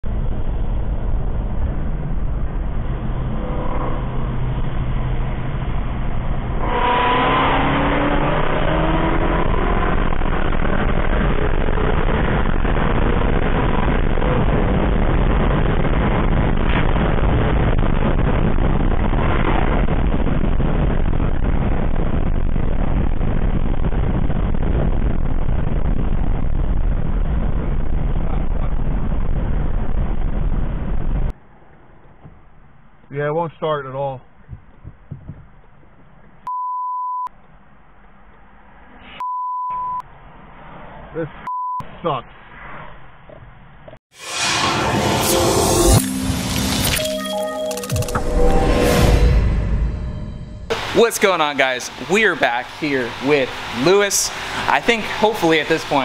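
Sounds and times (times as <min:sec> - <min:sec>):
car engine revving hard: 0:06.4 - 0:14.9.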